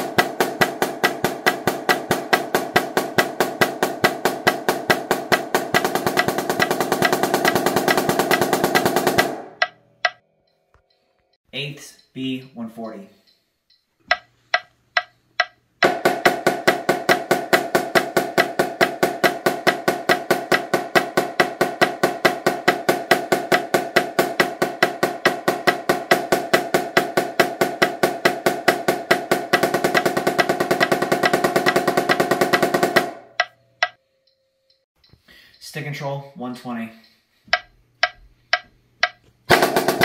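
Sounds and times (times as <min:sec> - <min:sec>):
marching snare drum: 0:00.0 - 0:09.7, 0:15.8 - 0:33.3, 0:39.5 - 0:40.0
count-off clicks: 0:09.5 - 0:15.9, 0:33.4 - 0:39.3.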